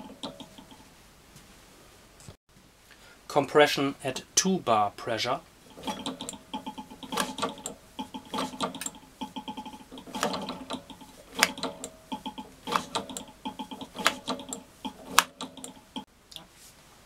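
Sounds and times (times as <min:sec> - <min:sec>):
engine mechanism ticking: 0:00.0 - 0:00.8, 0:05.7 - 0:16.1.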